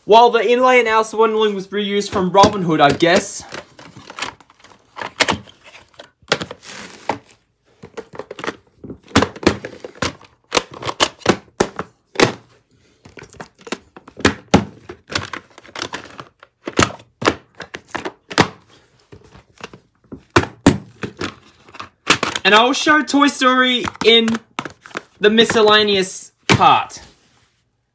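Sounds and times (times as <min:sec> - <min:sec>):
plastic cases knocking and clicking: 0:02.0 - 0:07.2, 0:07.8 - 0:22.4, 0:23.8 - 0:25.9.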